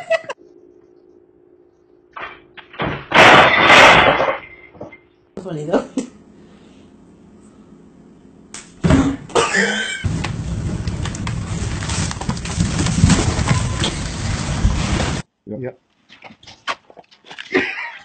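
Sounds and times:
low steady hum: 0.0s - 15.2s
cardboard box scraping on floor: 10.1s - 15.2s
paper bag rustling: 10.1s - 15.2s.

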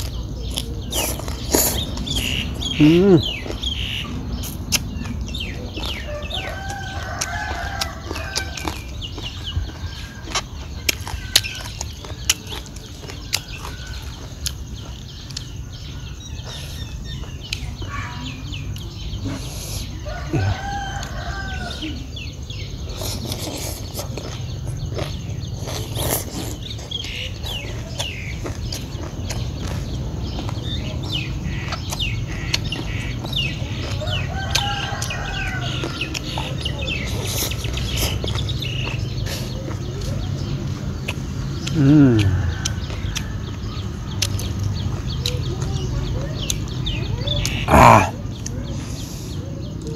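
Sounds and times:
person eating with crunching: 0.0s - 17.9s, 18.5s - 49.9s
small birds chirping: 0.0s - 49.9s
chicken calls: 0.1s - 17.0s, 17.8s - 45.7s, 46.4s - 49.9s
mouth smacks: 41.0s - 43.3s.

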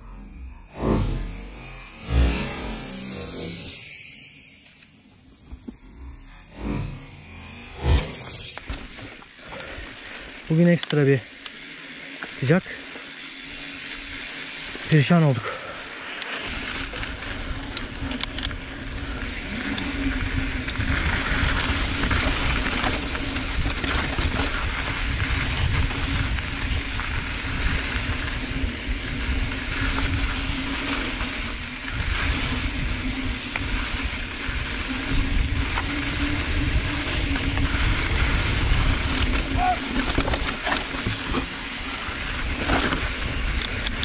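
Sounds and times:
steady low hum: 0.0s - 8.7s
bike tyres crunching over dirt: 0.0s - 44.0s.

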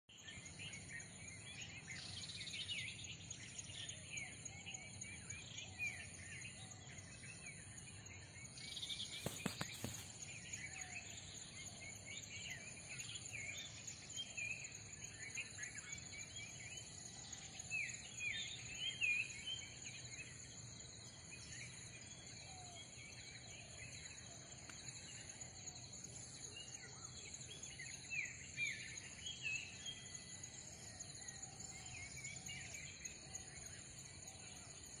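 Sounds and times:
fast pulsing insect chirp: 0.1s - 35.0s
insects trilling: 0.1s - 35.0s
short falling bird chirps: 9.0s - 10.2s.

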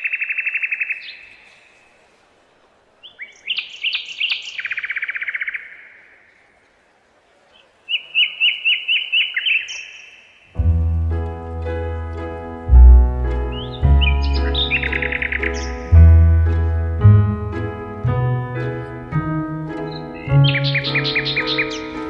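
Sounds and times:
songbird trilling: 13.4s - 16.4s, 19.2s - 22.0s.

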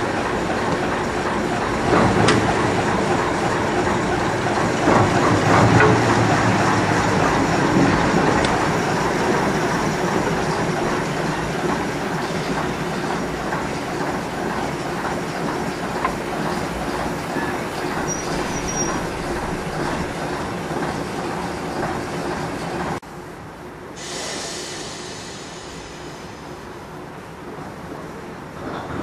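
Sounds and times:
wheels on rails: 0.0s - 23.0s
diesel locomotive engine: 0.0s - 29.0s
hiss: 24.0s - 27.3s.

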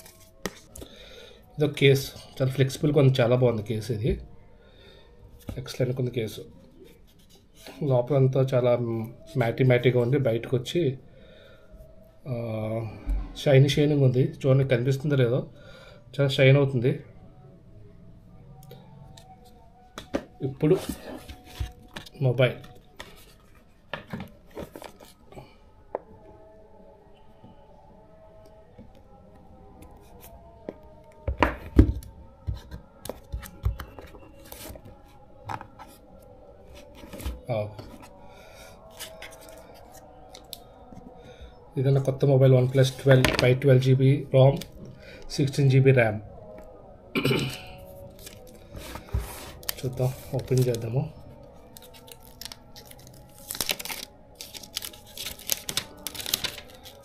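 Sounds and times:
packaging clicks and knocks: 19.9s - 25.0s
packaging crinkling and tearing: 38.8s - 40.6s, 48.0s - 50.9s, 51.5s - 57.0s.

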